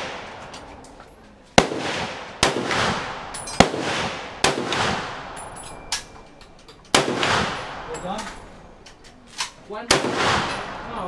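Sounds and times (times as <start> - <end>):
rifle shots echoing: 0.0 - 0.9, 1.6 - 5.6, 6.9 - 8.6, 9.8 - 11.0.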